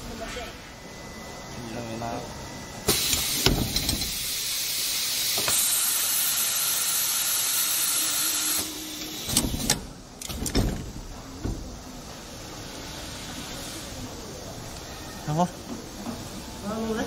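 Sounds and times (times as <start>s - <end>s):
knocks and clunks: 9.4s - 11.8s.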